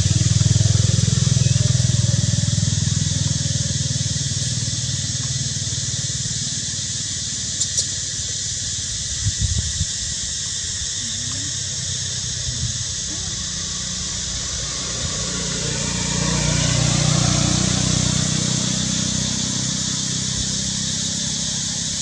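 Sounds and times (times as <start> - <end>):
engine humming: 0.0 - 22.0
steady high hiss: 3.9 - 16.4, 17.0 - 22.0.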